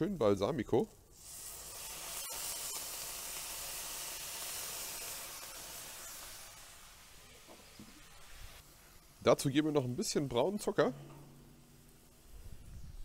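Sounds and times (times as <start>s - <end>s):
vinegar sizzling in hot pan: 1.1s - 10.7s.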